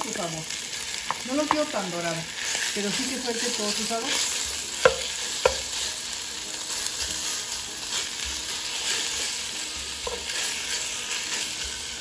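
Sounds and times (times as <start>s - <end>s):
bacon sizzling in oil: 0.0s - 12.0s
spatula knocking while stirring: 4.8s - 5.8s, 9.8s - 10.7s.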